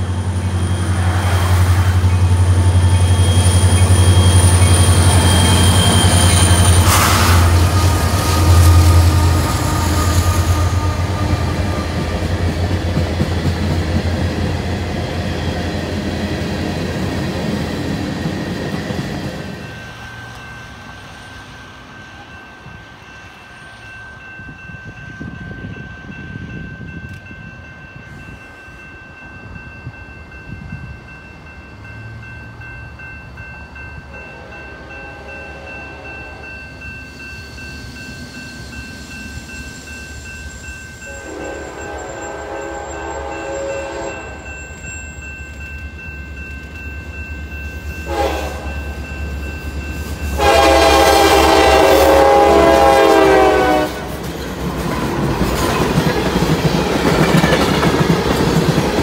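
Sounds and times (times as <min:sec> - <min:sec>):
train wheels on rails: 0:00.0 - 0:59.0
locomotive air horn blasts: 0:05.1 - 0:11.6, 0:34.4 - 0:36.4, 0:41.1 - 0:44.4, 0:48.1 - 0:48.8, 0:50.4 - 0:54.1.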